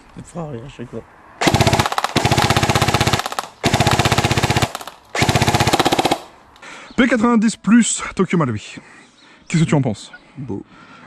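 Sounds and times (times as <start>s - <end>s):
airsoft gun full-auto bursts: 1.4s - 6.4s.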